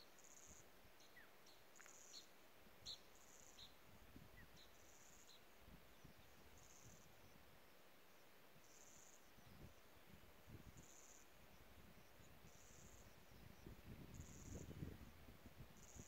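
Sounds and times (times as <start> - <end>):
insects trilling: 4.6 - 7.4, 10.6 - 15.2, 15.8 - 16.0.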